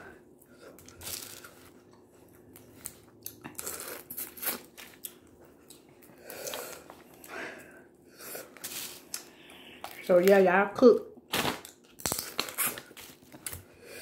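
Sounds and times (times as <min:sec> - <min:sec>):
chewing: 0:00.4 - 0:07.4.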